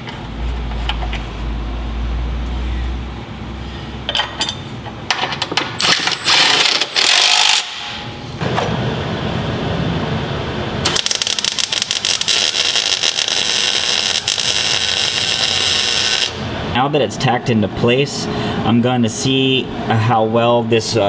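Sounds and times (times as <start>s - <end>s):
welding arc crackling: 6.2s - 8.0s, 10.8s - 16.6s.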